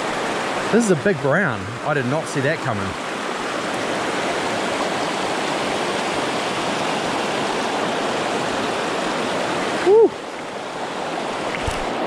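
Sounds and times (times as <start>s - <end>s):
river water rushing over stones: 0.0s - 12.0s.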